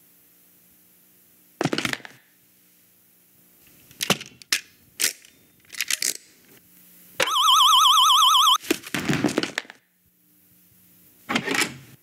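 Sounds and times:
sharp cracks and knocks: 0:01.6 - 0:02.2.

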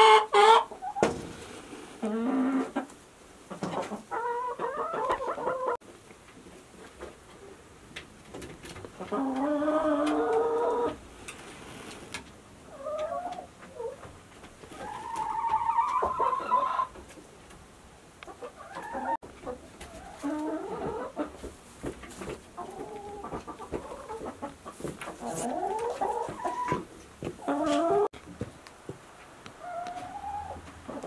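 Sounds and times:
chickens calling: 0:00.0 - 0:05.8, 0:08.4 - 0:17.5, 0:18.2 - 0:28.2, 0:29.2 - 0:31.0.

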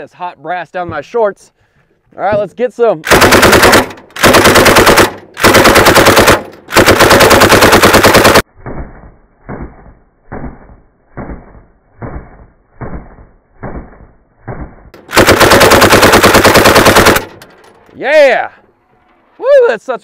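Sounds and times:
machine gun bursts: 0:03.1 - 0:08.4, 0:15.0 - 0:17.4.

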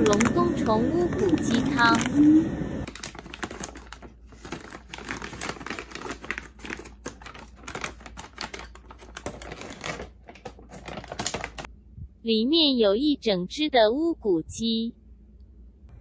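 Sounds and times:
plastic pouch crinkling: 0:00.0 - 0:11.7.

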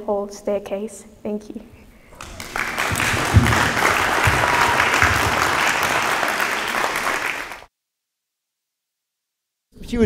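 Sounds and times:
congregation applauding: 0:02.1 - 0:07.7.

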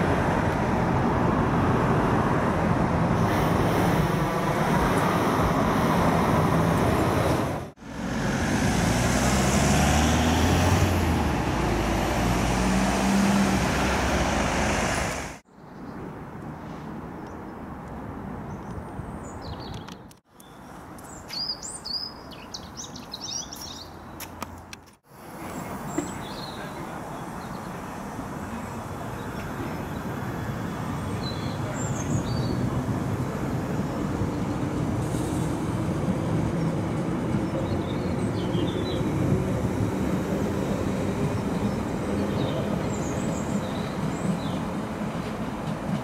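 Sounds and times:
road traffic: 0:00.0 - 0:46.0
vehicle engine pulling away: 0:03.2 - 0:15.4
birds chirping: 0:18.5 - 0:24.6, 0:25.3 - 0:34.7, 0:36.5 - 0:45.6.

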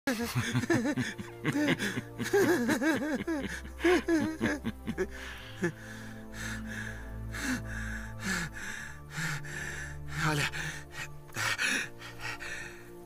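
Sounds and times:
man laughing: 0:00.1 - 0:05.8
low background music: 0:00.1 - 0:13.0.

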